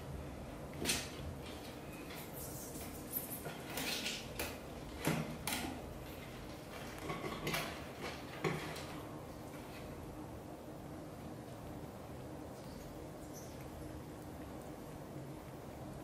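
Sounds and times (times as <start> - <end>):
cat grooming scuffs and clicks: 12.5 - 15.7.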